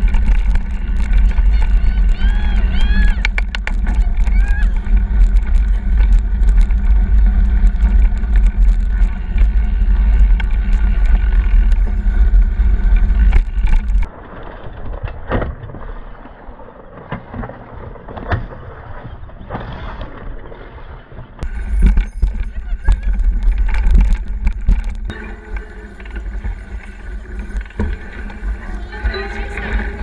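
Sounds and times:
wind buffeting microphone: 0.0s - 14.2s, 21.4s - 30.0s
tyre rolling over dirt: 0.0s - 14.8s, 21.4s - 30.0s
bike knocks and rattles: 0.0s - 16.1s, 21.4s - 30.0s.

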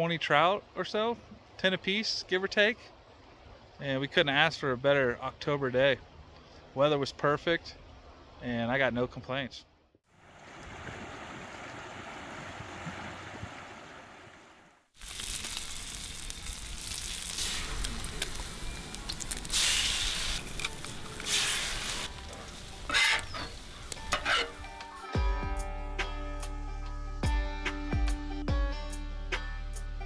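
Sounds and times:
food sizzling in a frying pan: 15.0s - 24.2s.

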